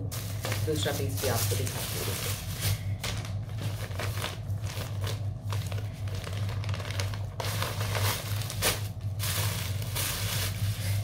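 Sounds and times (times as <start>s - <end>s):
plastic packaging crinkling: 0.0s - 11.0s
steady low hum: 0.0s - 11.0s.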